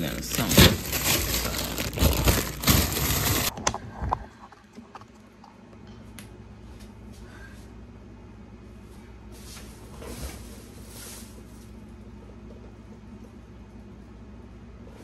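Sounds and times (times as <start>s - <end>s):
plastic freezer bags crinkling: 0.0s - 3.6s.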